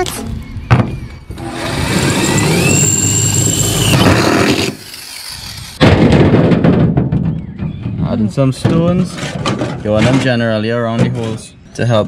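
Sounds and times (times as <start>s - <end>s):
power drill drilling through steel: 1.4s - 5.8s.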